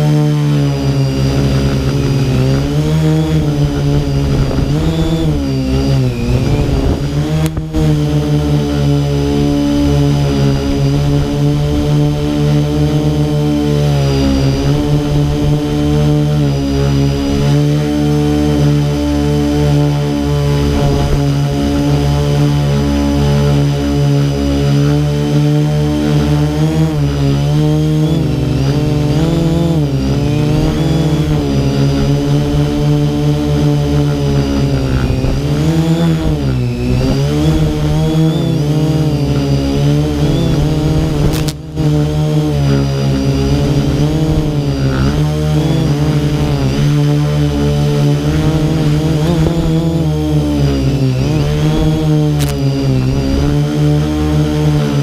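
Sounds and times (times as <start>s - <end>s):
motorbike engine revving: 0.0s - 55.0s.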